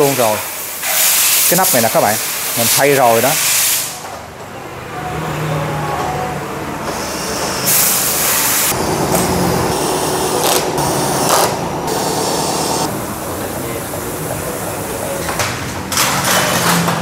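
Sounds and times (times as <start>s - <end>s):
air hissing: 0.0s - 4.0s, 6.9s - 15.1s
pneumatic tool rattling: 0.1s - 2.6s.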